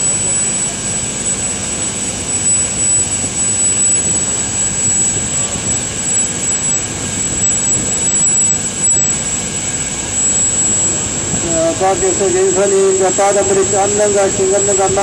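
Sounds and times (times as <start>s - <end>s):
boat engine drone: 0.0s - 15.0s
thin high whine: 0.0s - 15.0s
wind: 0.0s - 15.0s.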